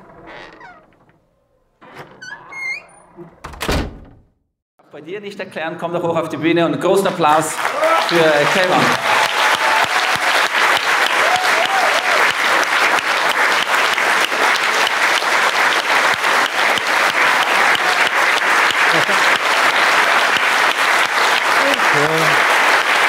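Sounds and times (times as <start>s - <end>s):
audience applause: 7.2s - 23.0s.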